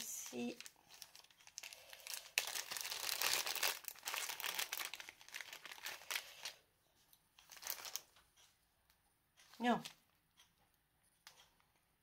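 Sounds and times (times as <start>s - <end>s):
plastic bag crinkling: 0.0s - 6.6s, 7.4s - 8.1s.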